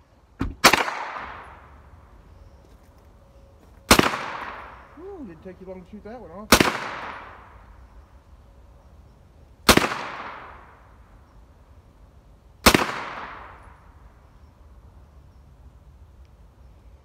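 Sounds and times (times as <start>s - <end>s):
rifle shots with echo: 0.4s - 1.7s, 3.9s - 4.9s, 6.5s - 7.6s, 9.6s - 10.8s, 12.6s - 13.8s.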